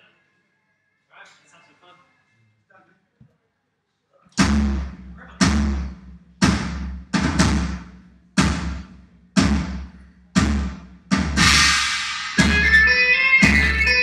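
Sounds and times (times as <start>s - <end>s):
kick drum hits: 4.4s - 11.7s
crash cymbal ringing: 11.4s - 14.0s.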